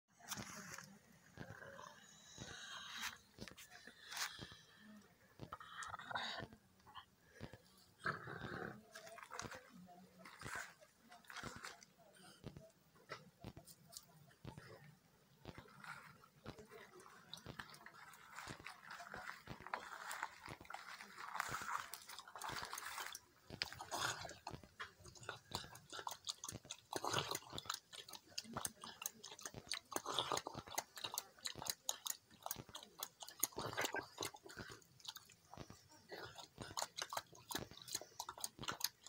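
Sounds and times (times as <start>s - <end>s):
dog chewing from metal bowl: 15.4s - 39.0s.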